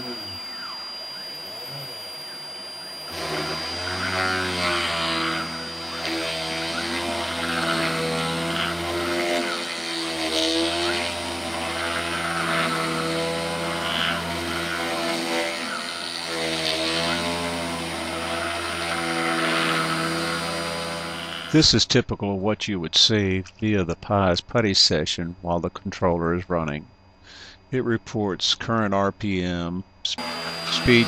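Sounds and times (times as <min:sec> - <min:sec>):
router bit cutting wood: 0:00.0 - 0:21.7, 0:30.2 - 0:31.0
spindle motor humming: 0:00.0 - 0:21.7, 0:30.1 - 0:31.0.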